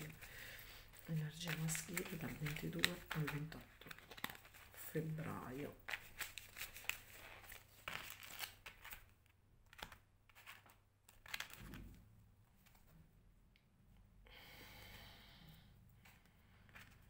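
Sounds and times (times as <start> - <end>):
cards tapping: 0.0 - 4.7, 5.9 - 12.0
cards being shuffled: 0.0 - 12.0, 12.6 - 13.0, 16.0 - 17.0.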